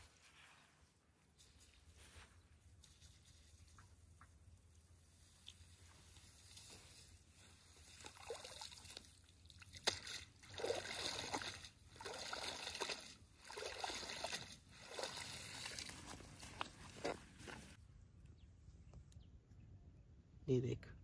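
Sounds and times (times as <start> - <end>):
river water sloshing and splashing: 5.2 - 17.8.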